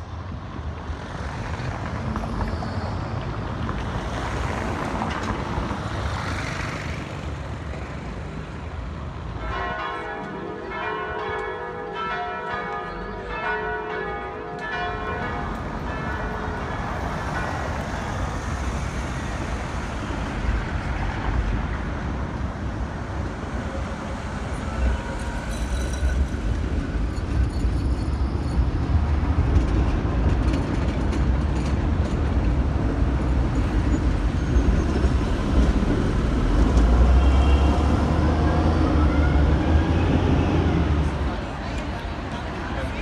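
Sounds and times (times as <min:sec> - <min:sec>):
street traffic with passing cars: 0:00.0 - 0:43.0
church bells ringing: 0:09.4 - 0:18.1.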